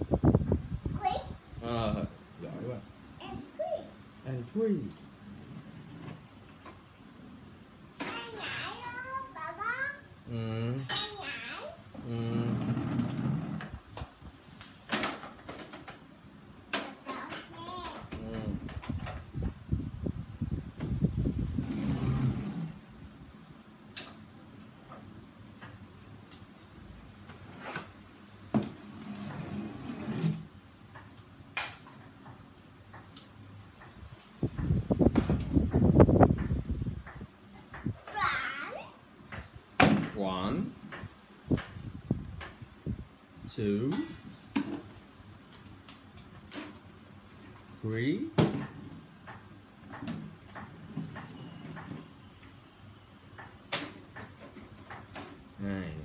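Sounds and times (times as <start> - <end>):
toys scraping over tiled floor: 12.4 - 13.8, 21.6 - 22.8, 28.7 - 30.5.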